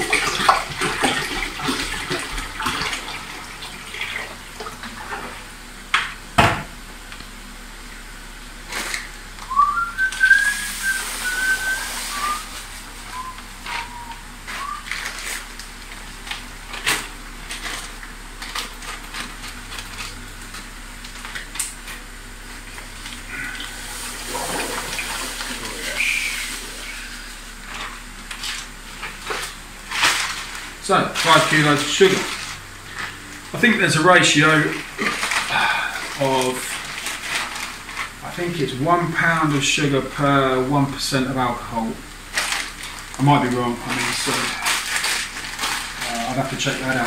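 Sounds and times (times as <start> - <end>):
person whistling: 9.5 - 15.0.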